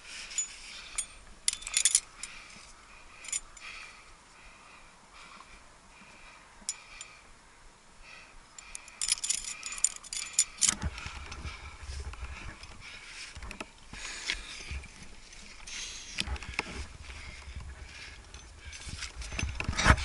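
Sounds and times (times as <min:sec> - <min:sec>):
climbing gear clinking and jangling: 0:00.0 - 0:04.0, 0:08.6 - 0:12.8, 0:14.2 - 0:20.0.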